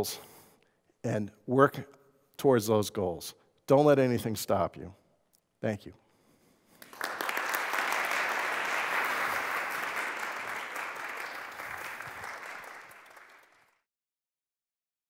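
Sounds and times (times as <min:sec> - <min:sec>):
audience applauding: 0:06.8 - 0:13.8.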